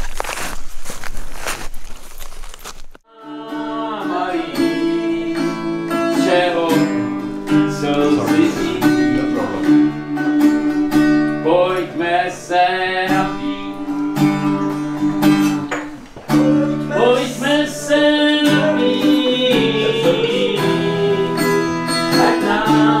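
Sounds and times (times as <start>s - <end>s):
person singing: 3.1s - 10.4s, 11.4s - 14.8s, 16.3s - 23.0s
acoustic guitar strumming: 3.1s - 23.0s.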